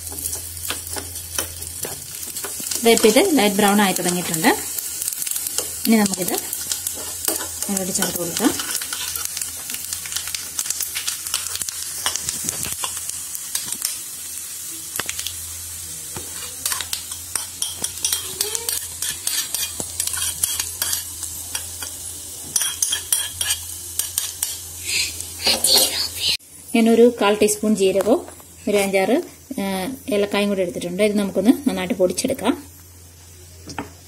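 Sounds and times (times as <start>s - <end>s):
coconut sizzling in pan: 0.0s - 34.0s
spoon scraping metal pan: 16.6s - 21.7s.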